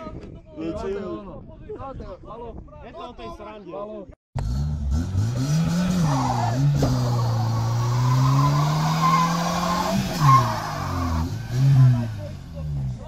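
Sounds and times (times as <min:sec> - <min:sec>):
car engine revving high: 0:04.4 - 0:13.0
tyres squealing: 0:06.0 - 0:12.6.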